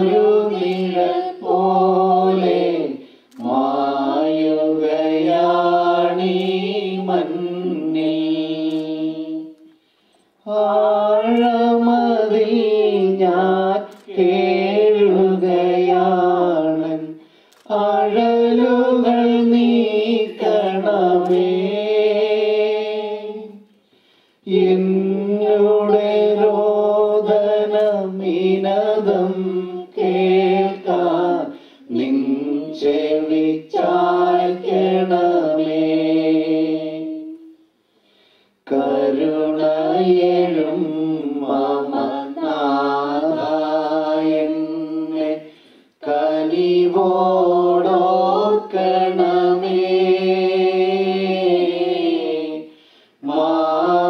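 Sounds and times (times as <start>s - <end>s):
slow hymn being sung: 0.0s - 54.0s.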